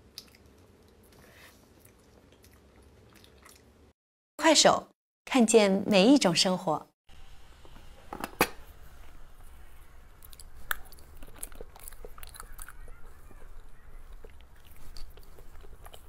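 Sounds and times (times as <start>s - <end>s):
wet chewing and mouth smacks: 0.0s - 3.8s, 10.2s - 16.0s
biting clicks: 10.2s - 16.0s.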